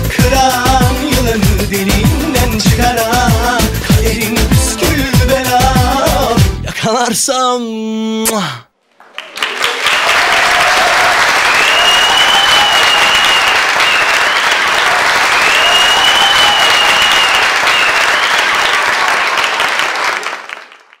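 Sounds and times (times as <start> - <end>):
audience applauding: 8.8 - 21.0
high-pitched cheers: 9.0 - 20.4.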